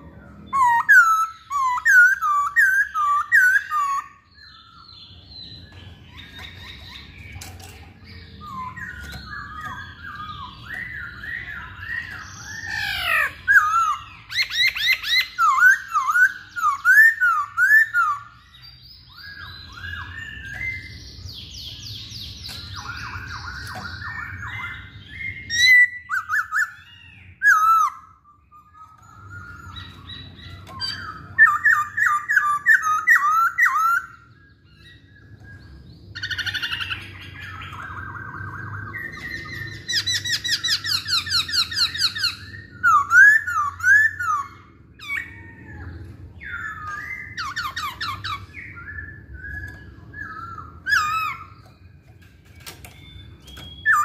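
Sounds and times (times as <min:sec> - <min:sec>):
bird singing whistled notes: 0:00.0 - 0:54.0.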